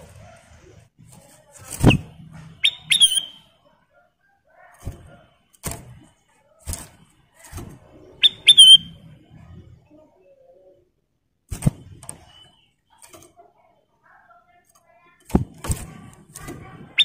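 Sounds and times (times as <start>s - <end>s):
bird rising whistles: 2.6s - 3.4s, 8.2s - 9.0s.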